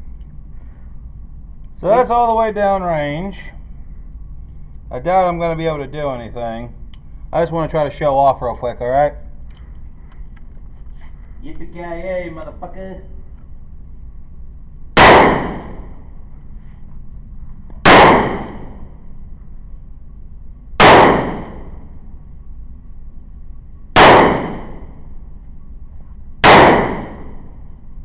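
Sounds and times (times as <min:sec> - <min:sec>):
gunshots echoing indoors: 0:14.9 - 0:16.2, 0:17.8 - 0:19.0, 0:20.8 - 0:22.0, 0:23.9 - 0:25.2, 0:26.4 - 0:27.7.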